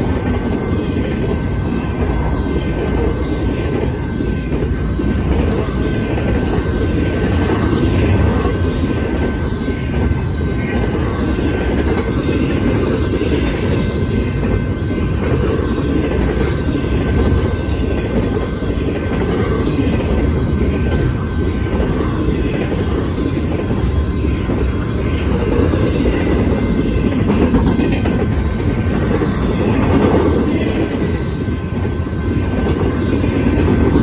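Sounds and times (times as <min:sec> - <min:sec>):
steel wheels rumbling on rail: 0:00.0 - 0:34.0.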